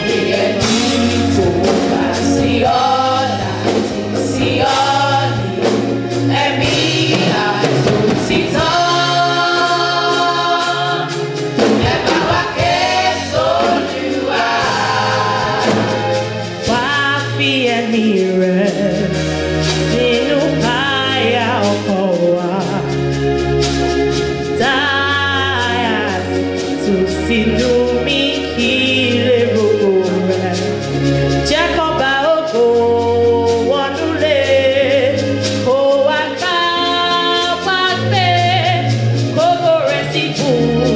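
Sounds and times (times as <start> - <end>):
choir of women singing: 0.0 - 16.7.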